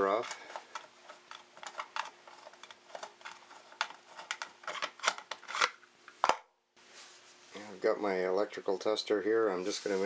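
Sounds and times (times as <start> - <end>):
faint steady hum: 0.0 - 10.0
plastic cover clicks and scrapes: 0.2 - 6.4.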